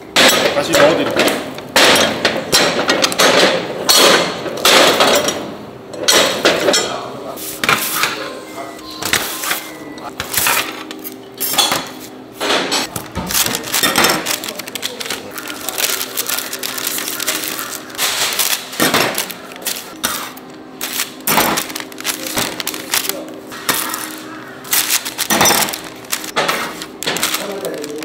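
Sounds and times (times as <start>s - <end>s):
metal trays clinking and clattering: 0.2s - 7.1s, 9.2s - 28.0s
paper bags rustling: 9.0s - 28.0s.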